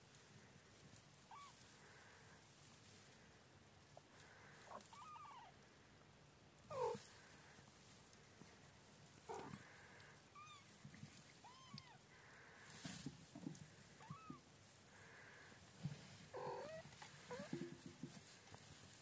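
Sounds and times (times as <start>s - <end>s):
newborn kittens mewing: 1.3s - 2.1s, 4.2s - 5.6s, 6.7s - 7.3s, 9.2s - 12.4s, 13.9s - 15.5s, 16.3s - 17.6s.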